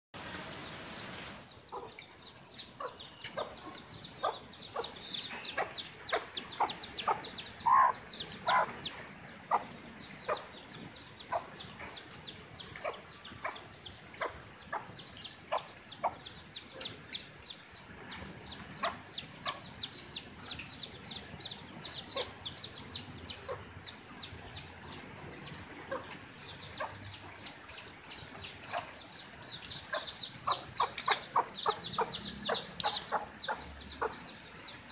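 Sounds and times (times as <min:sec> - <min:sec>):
baby chicks peeping: 0:01.0 - 0:34.9
hen clucking: 0:01.7 - 0:02.1, 0:02.8 - 0:17.0, 0:25.4 - 0:34.7.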